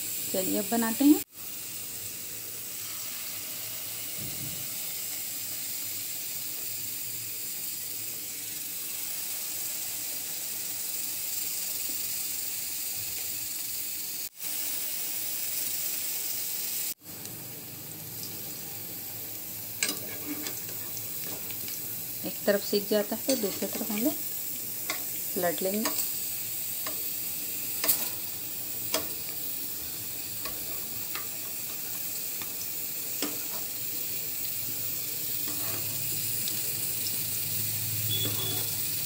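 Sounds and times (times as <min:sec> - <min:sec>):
batter sizzling in hot oil: 0:00.0 - 0:39.0.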